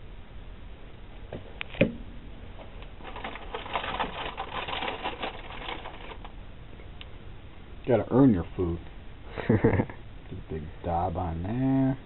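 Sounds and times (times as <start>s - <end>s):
quick clicking and scraping: 2.8s - 6.3s.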